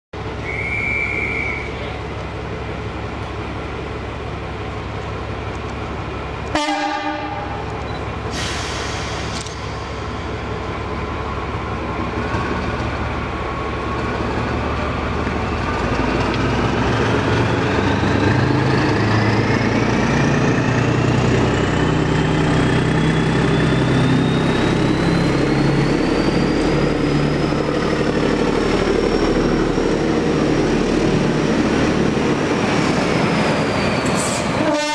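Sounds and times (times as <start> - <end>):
diesel locomotive engine running: 0.2 - 34.9
high whistle: 0.4 - 1.9
locomotive horn blast: 6.5 - 7.7, 34.4 - 34.9
rising engine whine: 7.4 - 34.6.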